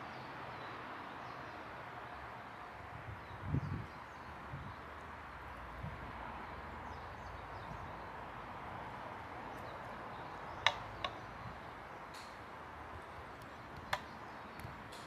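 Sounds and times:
sharp clicks: 0:10.6 - 0:11.2.

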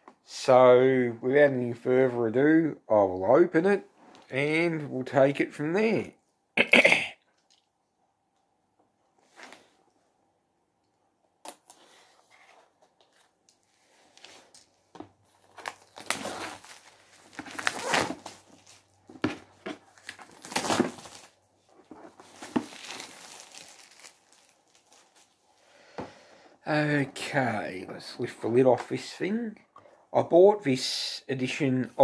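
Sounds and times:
plastic shrink-wrap crinkling and tearing: 0:15.3 - 0:25.4.

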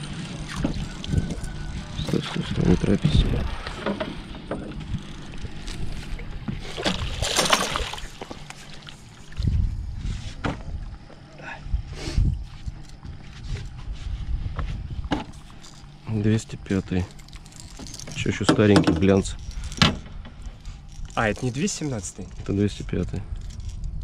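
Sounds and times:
boat rumbling on water: 0:00.0 - 0:11.3.

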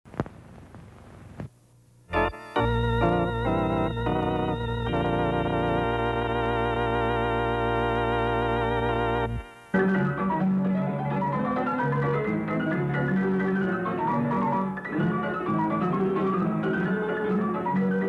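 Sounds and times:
faint hiss: 0:00.1 - 0:03.3
organ chords: 0:02.0 - 0:18.0.

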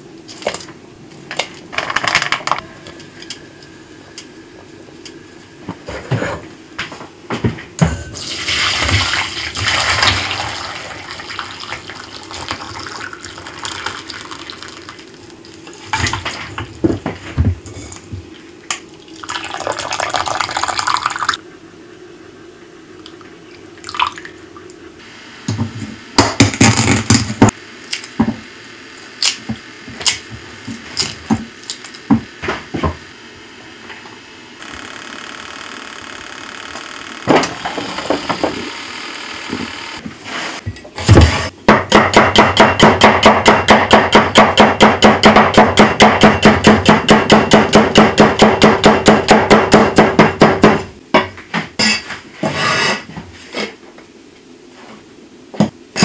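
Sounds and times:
toaster oven humming: 0:00.0 - 0:51.2
soup pouring through strainer: 0:08.2 - 0:15.2, 0:19.1 - 0:21.4
kitchen utensils clinking: 0:51.8 - 0:53.1.

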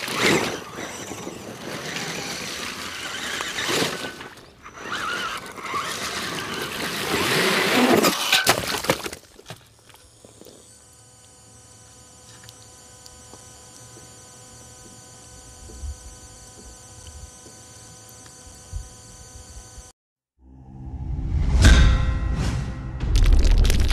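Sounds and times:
electric motor whining: 0:00.0 - 0:07.9, 0:09.9 - 0:20.0
ice cracking and crunching: 0:00.0 - 0:10.7, 0:23.2 - 0:23.9.

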